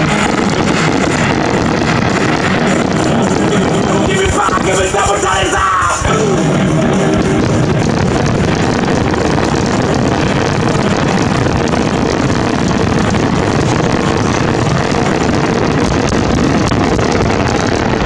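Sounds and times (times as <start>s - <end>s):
music playing: 0.0s - 12.8s
fireworks crackling and bursting: 0.0s - 18.0s.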